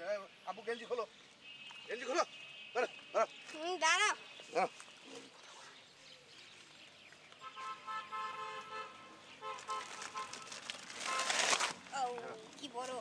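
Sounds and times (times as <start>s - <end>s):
faint vehicle horn tooting: 7.4s - 11.5s.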